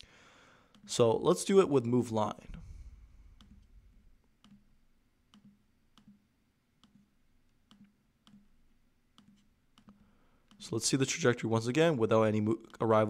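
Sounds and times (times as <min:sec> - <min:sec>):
computer mouse clicks: 0:00.7 - 0:00.9, 0:03.4 - 0:03.7, 0:04.4 - 0:06.2, 0:06.8 - 0:08.5, 0:09.2 - 0:10.7.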